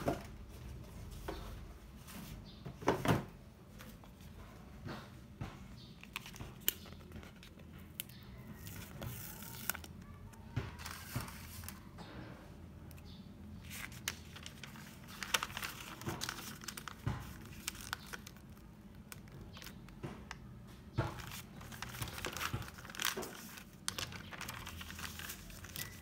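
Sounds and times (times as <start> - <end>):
paper crinkling: 6.0 - 11.9, 13.6 - 20.4, 21.0 - 26.0.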